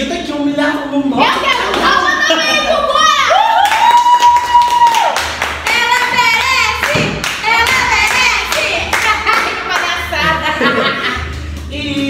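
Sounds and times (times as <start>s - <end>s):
people applauding: 3.3s - 10.0s
music with singing: 5.4s - 12.0s.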